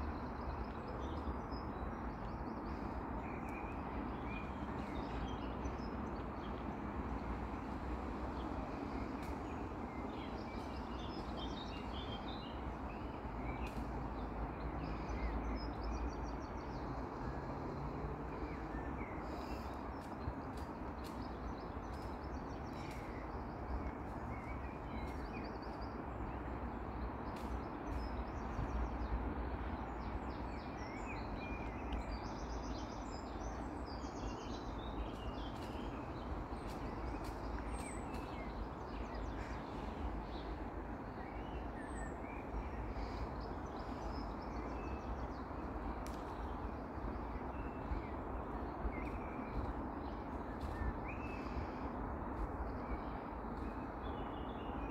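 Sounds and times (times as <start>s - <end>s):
songbirds chirping: 0.0s - 54.9s.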